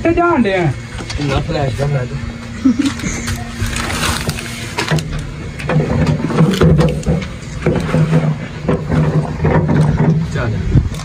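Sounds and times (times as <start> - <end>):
scraping and knocks on metal: 4.8 - 10.5.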